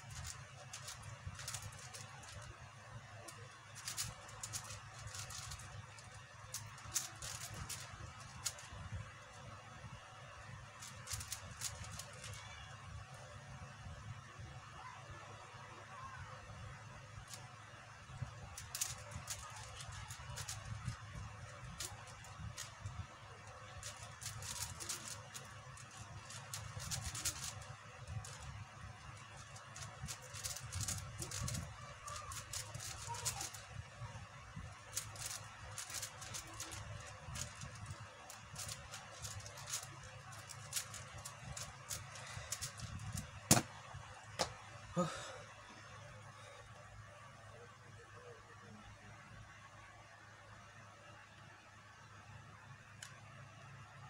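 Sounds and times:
plastic puzzle cube clicking: 0:00.1 - 0:02.5, 0:03.7 - 0:08.7, 0:10.8 - 0:12.4, 0:18.6 - 0:22.8, 0:23.8 - 0:28.5, 0:29.2 - 0:33.7, 0:34.8 - 0:43.7.

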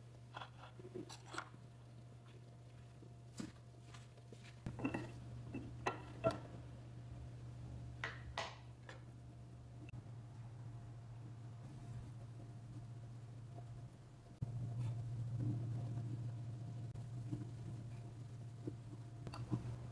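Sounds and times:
low steady hum: 0:00.0 - 0:19.9
ceramic tableware clinking: 0:04.7 - 0:06.4.

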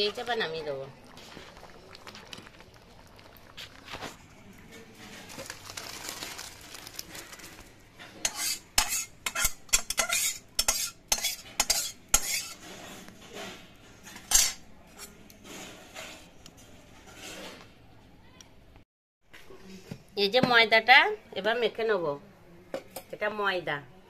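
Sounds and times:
metal ladle scraping a pan: 0:08.0 - 0:17.7.

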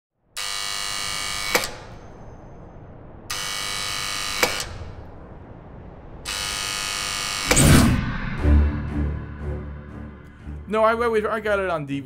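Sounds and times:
electric buzzer: 0:00.4 - 0:02.0, 0:03.3 - 0:05.0, 0:06.2 - 0:07.6
buzzer click: 0:03.3 - 0:04.8.

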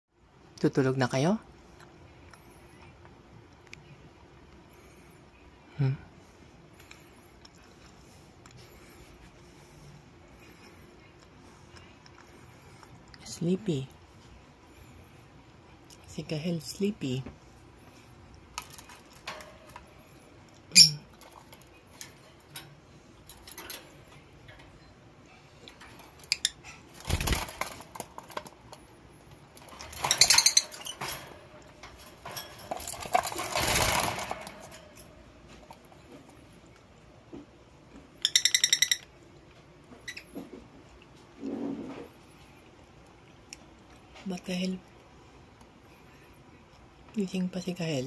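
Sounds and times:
birds squeaking and scratching: 0:17.6 - 0:36.7, 0:38.1 - 0:42.6.

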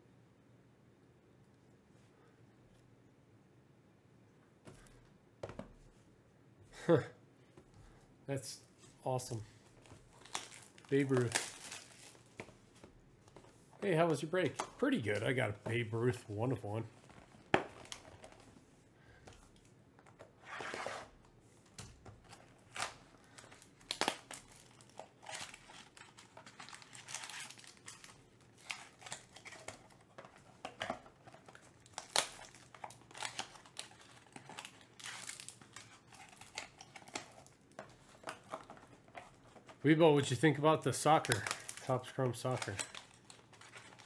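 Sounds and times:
plastic film crinkling and tearing: 0:10.0 - 0:12.4, 0:22.2 - 0:44.0.

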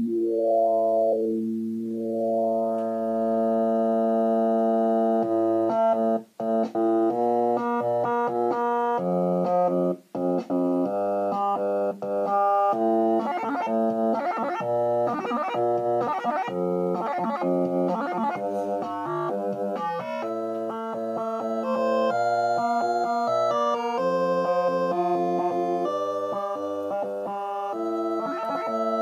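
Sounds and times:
electronic pitched tones: 0:12.2 - 0:29.0.

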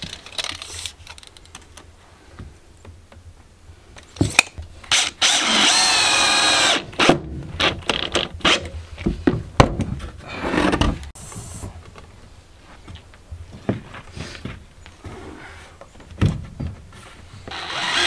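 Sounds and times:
cordless drill boring into wood: 0:04.9 - 0:06.9, 0:17.5 - 0:18.0.

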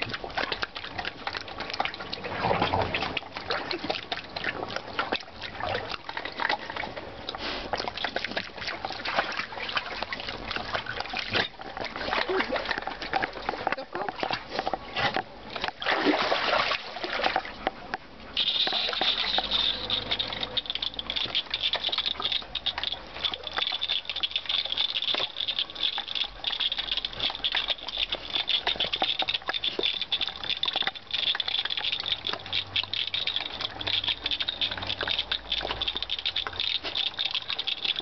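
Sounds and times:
splashing in pool water: 0:00.0 - 0:38.0
water jet hissing and pattering: 0:18.4 - 0:23.0.

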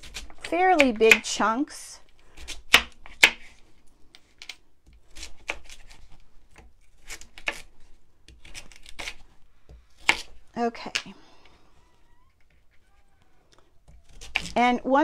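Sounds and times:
knife cutting sweet potato: 0:04.9 - 0:11.0, 0:13.8 - 0:14.7.

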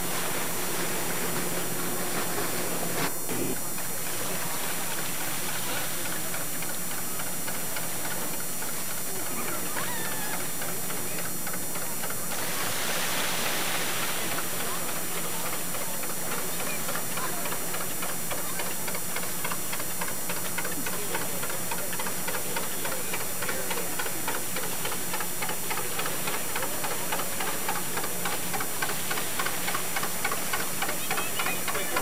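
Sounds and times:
boat engine knocking: 0:14.4 - 0:32.0.

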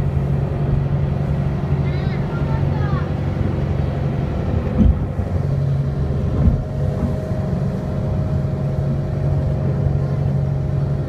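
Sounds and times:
motorboat engine running: 0:00.0 - 0:11.0
low thumps: 0:04.6 - 0:07.4.

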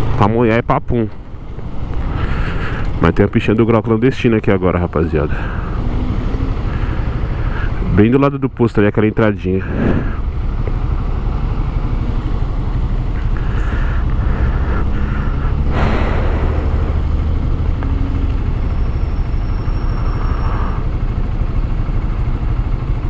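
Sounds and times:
motorcycle engine idling: 0:01.2 - 0:08.8, 0:09.4 - 0:23.0
brief rush of noise: 0:14.3 - 0:18.9.

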